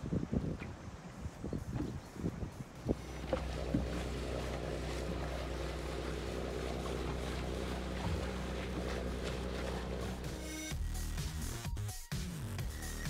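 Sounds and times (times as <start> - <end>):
wind: 0.0 - 10.7
water noise: 0.0 - 10.8
boat engine droning: 2.8 - 10.7.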